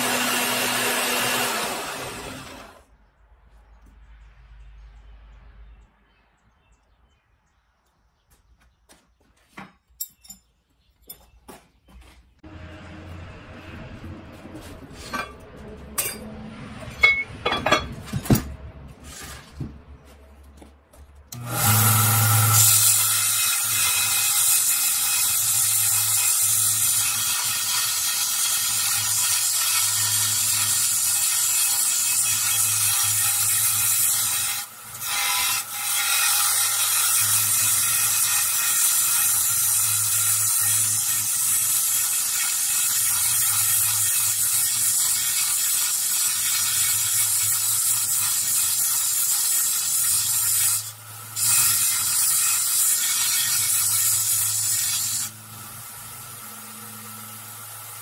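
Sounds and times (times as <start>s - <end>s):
belt grinder grinding steel: 0.0s - 2.8s, 21.3s - 58.0s
metal clinking: 10.0s - 11.3s, 16.9s - 18.5s.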